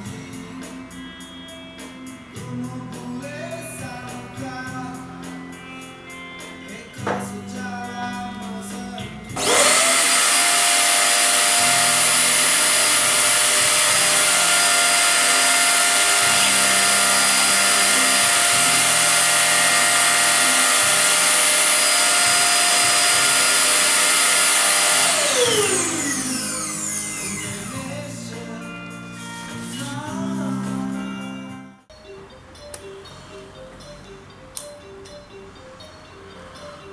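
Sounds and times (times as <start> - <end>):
suction motor whining: 9.4 - 28.3.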